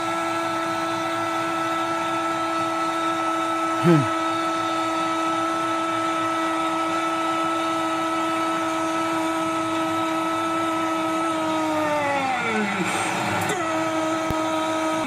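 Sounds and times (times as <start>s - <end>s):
stadium crowd noise: 0.0s - 15.0s
commentator's drawn-out goal call: 3.5s - 15.0s.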